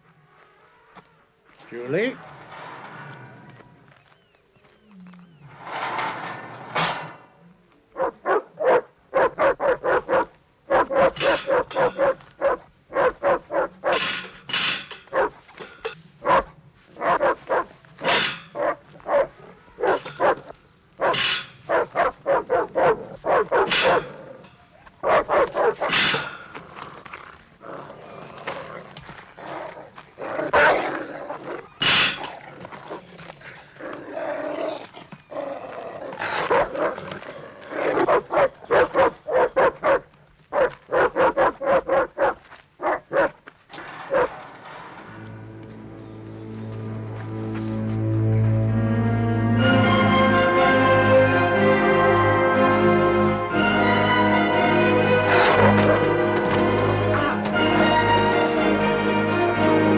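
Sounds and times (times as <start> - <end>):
dog barking and snarling: 8.0 - 14.1, 15.1 - 15.4, 16.2 - 24.4, 25.0 - 27.1, 29.6 - 43.4, 55.2 - 56.2.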